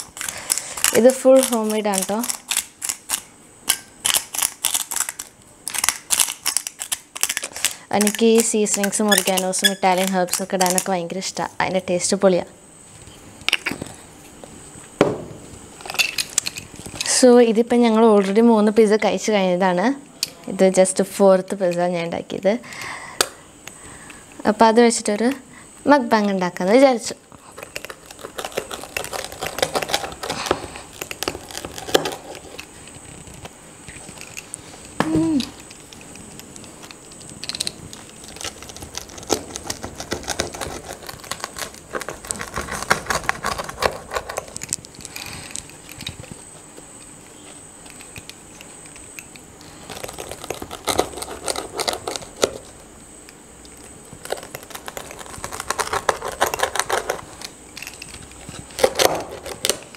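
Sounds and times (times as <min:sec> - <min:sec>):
pizza cutter crunching through crust: 0:27.4 - 0:52.8, 0:53.9 - 0:59.9.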